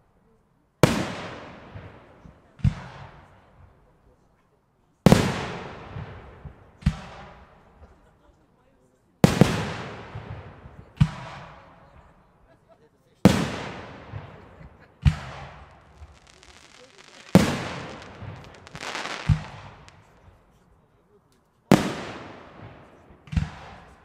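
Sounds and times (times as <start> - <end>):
fireworks bangs echoing: 0.8 - 3.5, 5.1 - 7.8, 9.2 - 12.0, 13.2 - 20.5, 21.7 - 24.0
fireworks crackling: 13.3 - 20.5.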